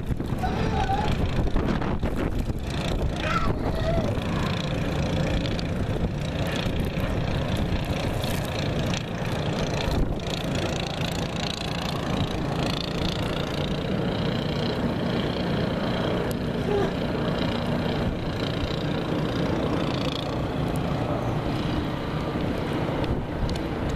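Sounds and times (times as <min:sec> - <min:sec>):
strong wind on microphone: 0:00.0 - 0:08.5, 0:09.7 - 0:10.7.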